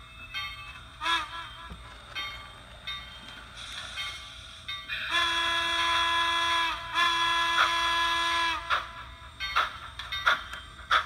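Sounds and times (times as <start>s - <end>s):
model train steam whistle: 1.0s - 1.7s, 5.0s - 9.3s.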